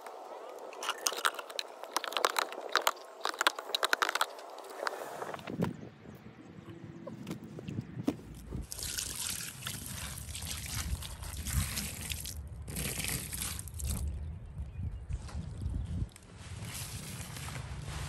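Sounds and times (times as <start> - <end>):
sponge squeezed liquid trickling: 8.6 - 14.0.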